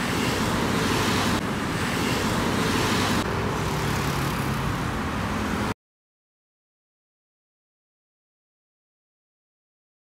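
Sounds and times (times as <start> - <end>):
cars and motorcycles passing: 0.0 - 5.8.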